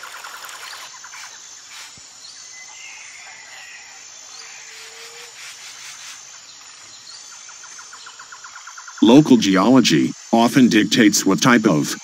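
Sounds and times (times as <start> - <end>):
insects droning: 0.0 - 12.0
bird chirps: 0.1 - 9.7.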